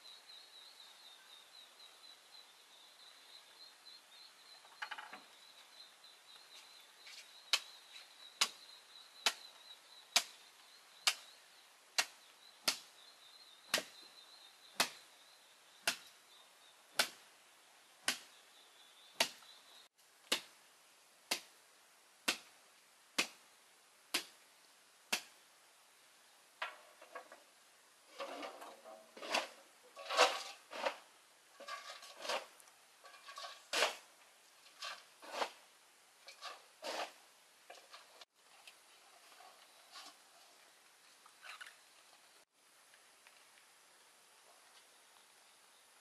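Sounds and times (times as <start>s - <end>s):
blade chopping wood: 12.0s - 12.9s, 13.7s - 14.0s, 14.8s - 15.0s, 15.8s - 16.1s, 16.9s - 17.2s, 18.1s - 18.3s, 22.2s - 22.5s.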